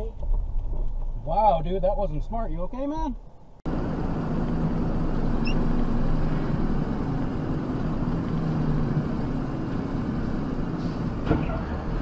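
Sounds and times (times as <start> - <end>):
road noise inside car: 0.0 - 12.0
low engine hum: 3.2 - 12.0.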